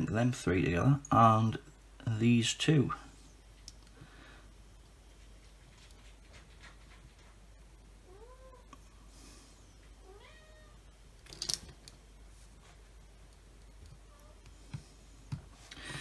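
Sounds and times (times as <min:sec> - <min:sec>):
cat meowing: 0:10.0 - 0:10.8.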